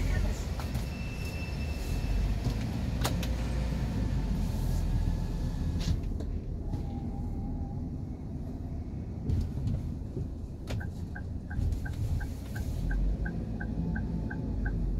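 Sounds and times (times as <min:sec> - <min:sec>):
car cabin rumble: 0:05.7 - 0:14.9.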